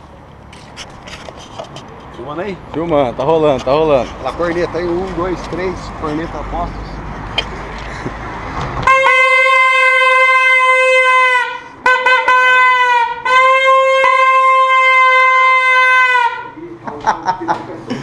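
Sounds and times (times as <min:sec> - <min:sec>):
plastic stadium horn honking: 0:08.8 - 0:16.6.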